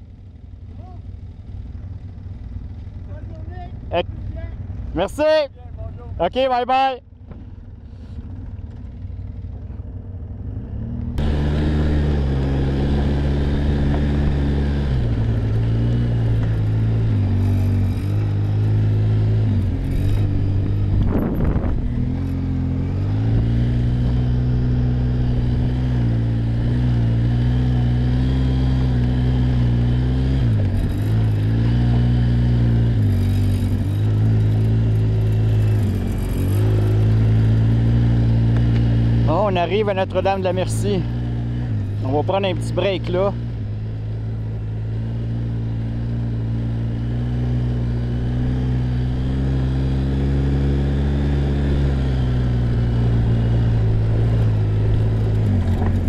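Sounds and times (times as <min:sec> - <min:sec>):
quad bike engine: 0:00.0 - 0:56.0
tyres on gravel: 0:53.9 - 0:56.0.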